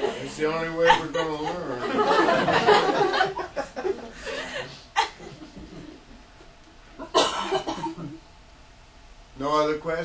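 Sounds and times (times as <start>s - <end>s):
audience laughing: 0.0s - 6.0s.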